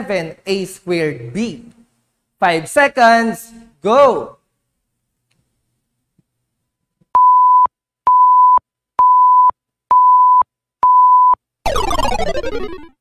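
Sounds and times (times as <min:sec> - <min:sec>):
electronic countdown beeps: 0:07.2 - 0:12.9
downward sweeping sound effect: 0:11.7 - 0:13.0.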